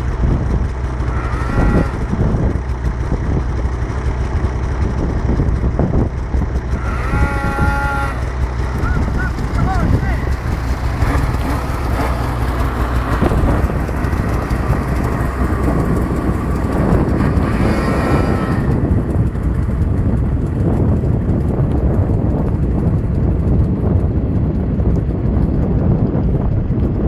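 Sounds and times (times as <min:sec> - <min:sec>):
snowmobile engine revving: 0:00.0 - 0:23.5
constant low rumble: 0:00.0 - 0:27.0.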